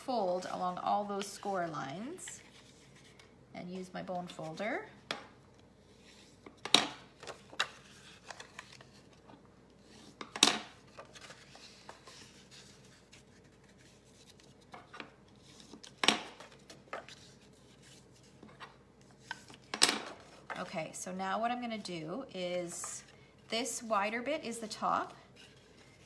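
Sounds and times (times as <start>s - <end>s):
paper scraping and rustling: 10.8s - 20.7s.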